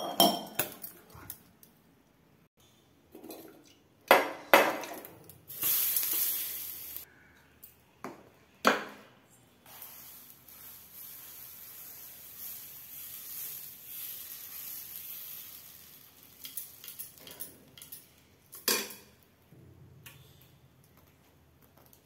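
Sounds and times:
batter sizzling on a pan: 0:05.5 - 0:07.1, 0:09.6 - 0:18.2.

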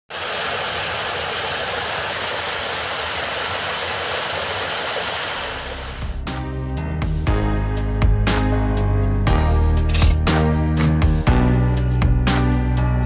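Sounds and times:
water rushing from a large pipe: 0:00.1 - 0:06.2
music: 0:05.8 - 0:13.0.

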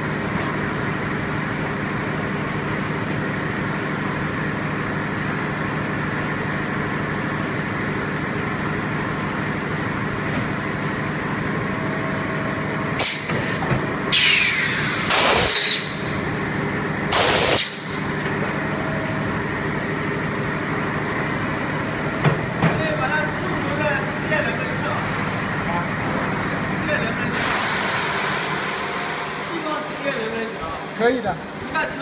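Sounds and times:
machine hum: 0:00.0 - 0:32.0
air hiss bursts: 0:13.0 - 0:16.1, 0:17.1 - 0:18.0, 0:27.4 - 0:30.1.

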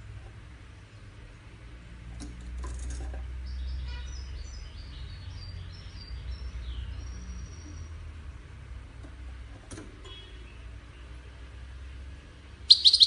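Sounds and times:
bird twittering song: 0:03.4 - 0:08.0, 0:12.7 - 0:13.0.

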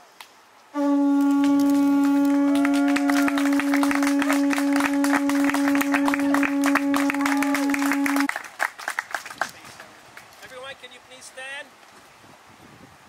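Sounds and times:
conch shell trumpet note: 0:00.7 - 0:08.3.

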